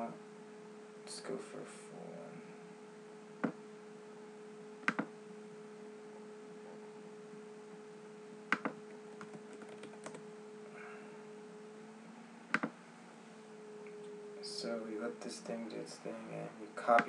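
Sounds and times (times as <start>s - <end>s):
steady electrical hum: 0.0s - 17.0s
computer mouse clicks: 4.8s - 5.1s, 8.5s - 10.2s, 12.5s - 12.8s
light keyboard typing: 8.5s - 10.2s.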